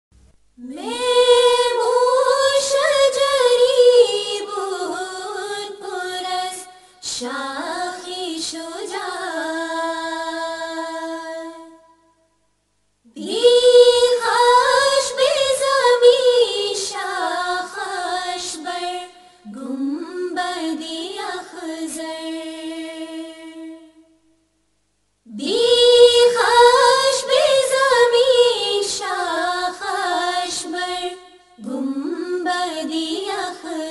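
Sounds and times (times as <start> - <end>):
person singing unaccompanied hymn: 0.6 - 11.8, 13.1 - 24.0, 25.3 - 33.9.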